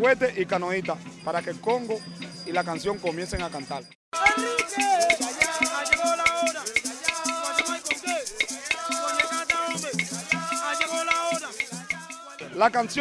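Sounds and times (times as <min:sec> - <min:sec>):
maracas: 0:00.0 - 0:13.0
drums beating: 0:04.2 - 0:12.4
people singing chant: 0:04.2 - 0:12.6.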